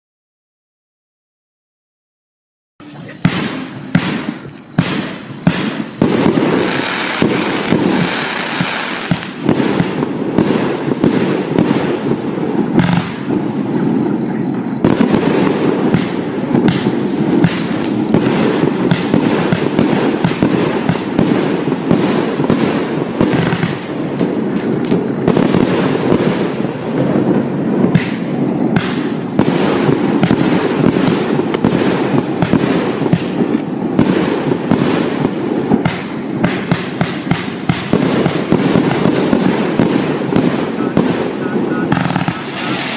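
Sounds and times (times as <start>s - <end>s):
firework shells bursting: 2.9s - 42.9s
firework launch thumps: 3.1s - 10.1s, 27.8s - 33.5s.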